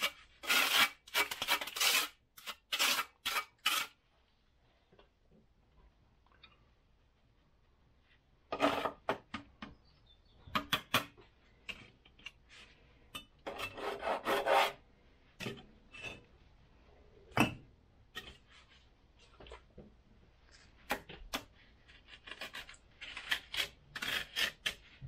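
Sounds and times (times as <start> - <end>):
trowel scraping mortar: 0.0 - 4.0, 13.4 - 14.8, 21.9 - 25.0.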